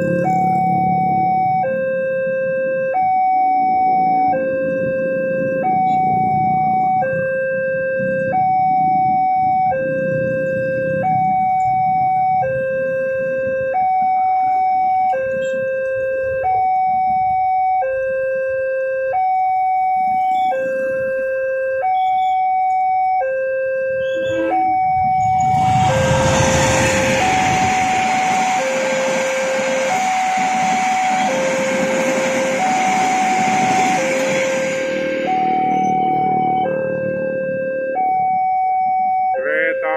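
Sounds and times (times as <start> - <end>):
train passing: 0.0 - 1.8, 24.3 - 38.3
level crossing two-tone alarm: 0.0 - 39.9.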